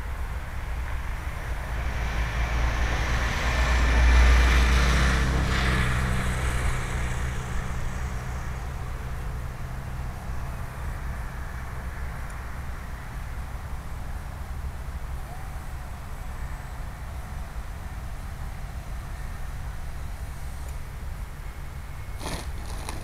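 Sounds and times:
car passing: 0.7s - 14.7s.

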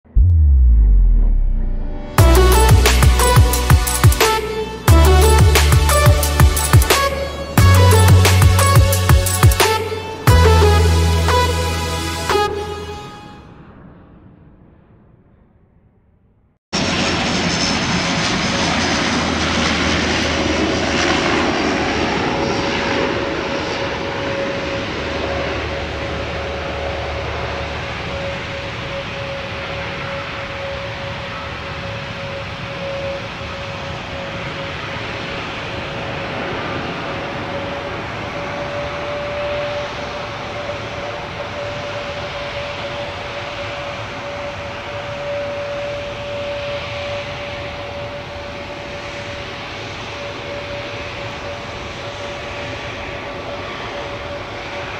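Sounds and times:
jet engines taxiing: 0.1s - 15.4s, 16.8s - 54.9s.

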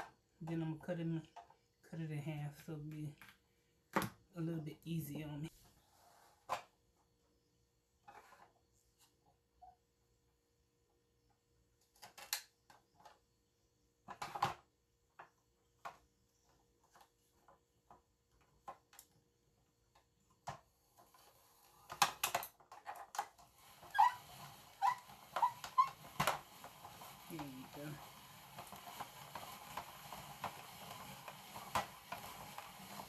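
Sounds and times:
spiralizer crank rasping: 23.6s - 33.0s
short squeaks: 23.8s - 26.1s.

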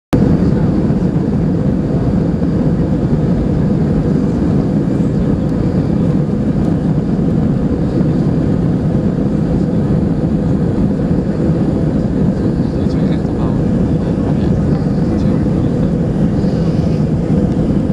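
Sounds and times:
jet engines rumbling on takeoff: 0.1s - 17.9s.

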